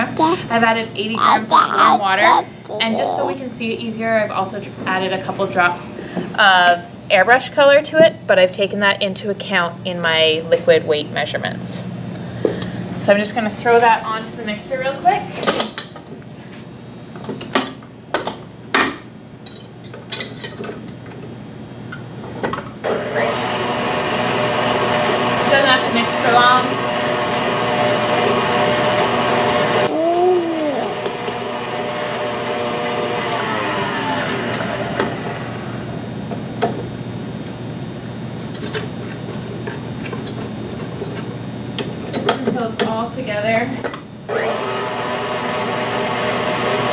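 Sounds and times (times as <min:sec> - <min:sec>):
stand mixer motor whining: 0:22.9 - 0:36.0, 0:44.3 - 0:46.9.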